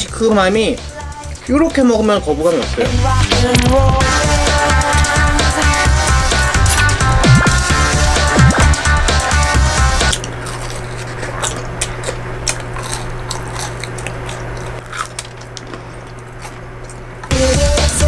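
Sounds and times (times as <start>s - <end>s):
steady low hum: 0.0s - 18.0s
electronic music: 0.6s - 10.2s
crunching pizza crust: 10.1s - 17.3s.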